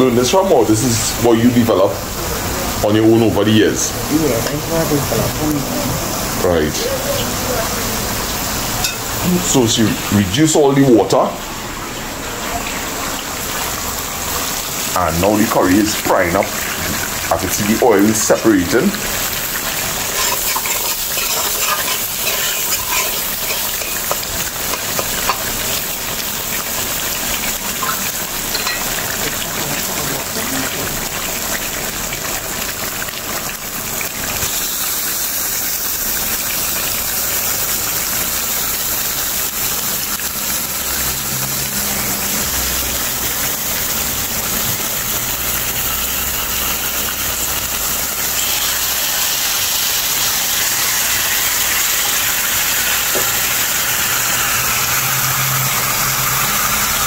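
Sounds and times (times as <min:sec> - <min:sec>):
paste sizzling in oil: 0:00.0 - 0:57.0
meat added to pot: 0:18.9 - 0:26.4
spoon stirring and scraping: 0:20.1 - 0:25.5.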